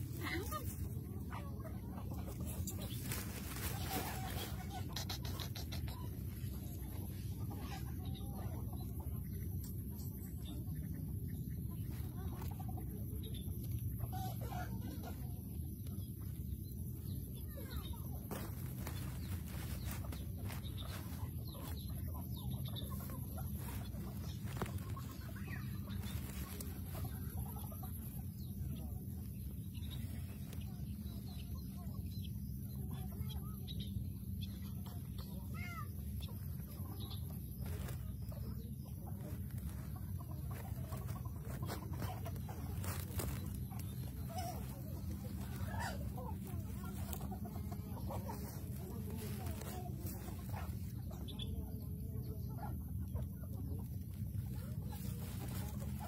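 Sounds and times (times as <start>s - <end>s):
steady low rumble: 0.0s - 56.0s
rustling on plastic tarp: 2.2s - 5.2s, 16.9s - 28.2s, 35.6s - 51.3s, 53.8s - 56.0s
high chirping calls: 16.3s - 28.9s.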